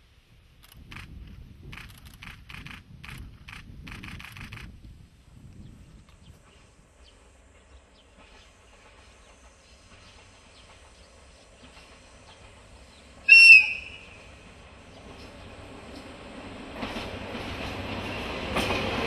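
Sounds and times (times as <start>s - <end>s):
locomotive engine and wheel rumble: 0.0s - 19.0s
locomotive whistle blast: 13.3s - 14.3s.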